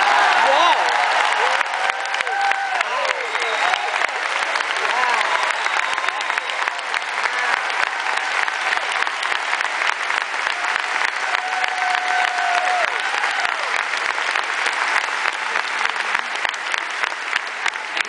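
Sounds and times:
person cheering: 0:00.0 - 0:04.2, 0:04.8 - 0:08.2, 0:10.6 - 0:13.8
crowd applauding: 0:00.0 - 0:18.0.

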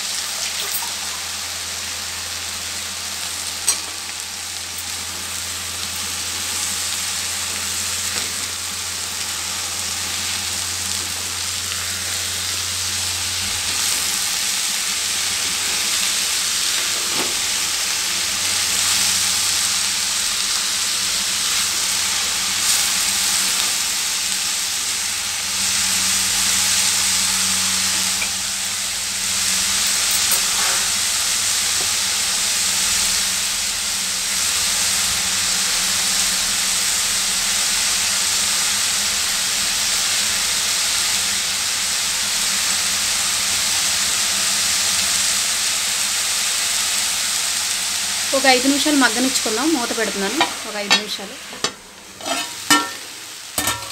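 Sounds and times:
greens sizzling in hot oil: 0:00.0 - 0:53.9
spatula stirring: 0:50.4 - 0:53.9.

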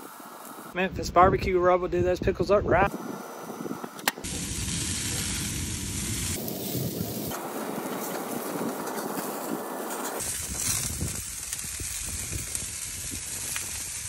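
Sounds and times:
food sizzling on a grill: 0:00.0 - 0:00.8, 0:04.2 - 0:14.0.

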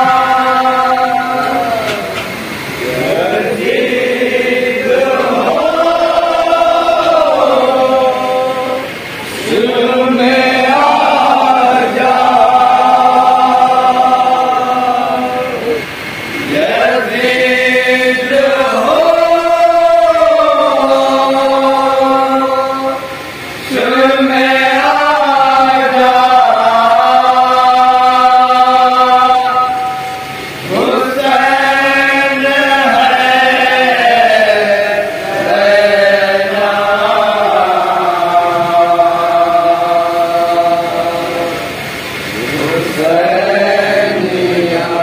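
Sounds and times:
men chanting a lament: 0:00.0 - 0:45.0.

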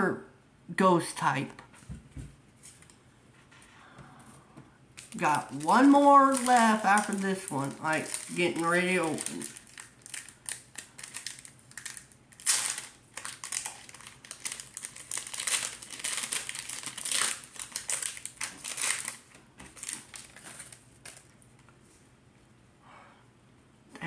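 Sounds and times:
foil pack crinkling: 0:05.0 - 0:21.6.

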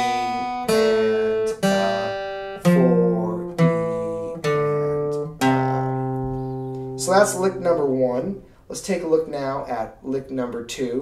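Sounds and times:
acoustic guitar single-note lick: 0:00.0 - 0:08.5.

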